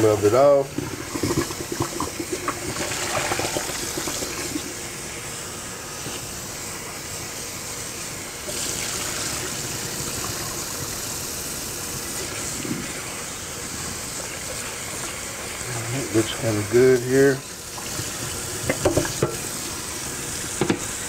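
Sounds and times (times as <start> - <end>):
tap running water into pot: 0.2 - 4.7, 17.3 - 21.0.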